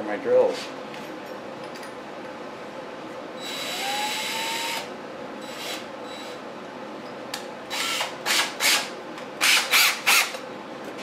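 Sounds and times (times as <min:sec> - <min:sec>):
cordless drill whining: 0:03.4 - 0:04.9, 0:07.7 - 0:08.1.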